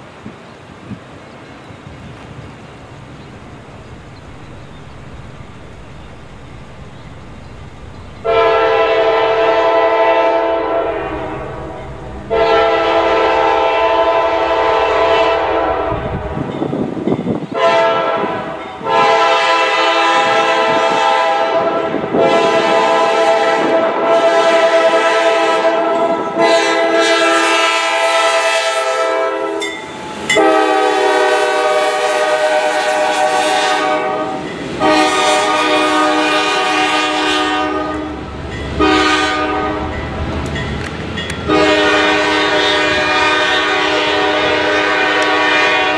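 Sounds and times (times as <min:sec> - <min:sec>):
locomotive air horn blasts: 0:08.1 - 0:16.5, 0:17.5 - 0:40.0, 0:41.5 - 0:45.9.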